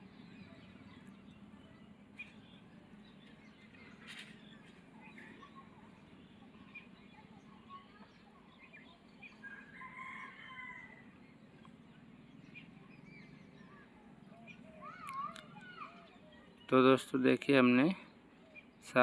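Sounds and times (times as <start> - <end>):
rooster crowing: 9.4 - 11.1.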